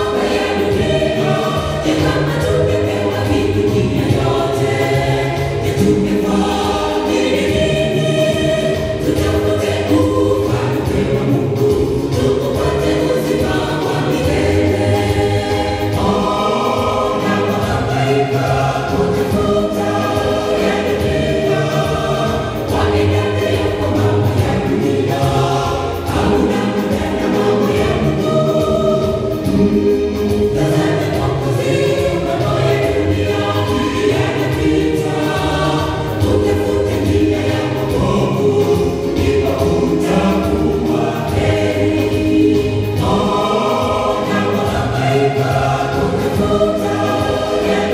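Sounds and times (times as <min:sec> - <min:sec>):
choir singing gospel in harmony: 0:00.0 - 0:47.9.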